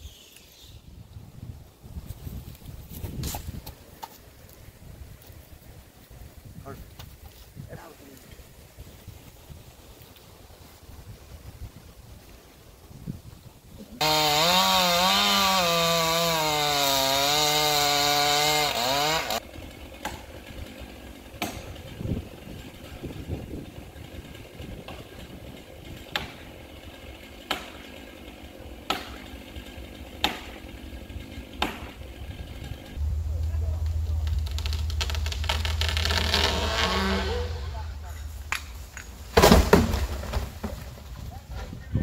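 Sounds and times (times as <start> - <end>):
chainsaw cutting wood: 14.0 - 33.0, 34.2 - 37.8.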